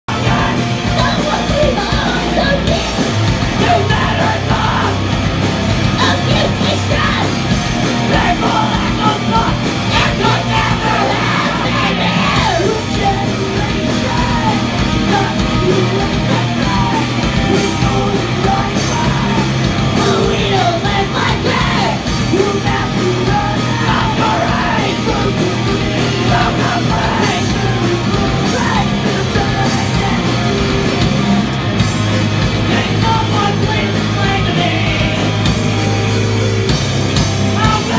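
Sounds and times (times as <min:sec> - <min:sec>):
drum kit: 0:00.0 - 0:37.9
electric bass guitar: 0:00.0 - 0:37.9
electric guitar: 0:00.1 - 0:37.9
shouted vocals: 0:06.0 - 0:30.6, 0:37.5 - 0:37.9.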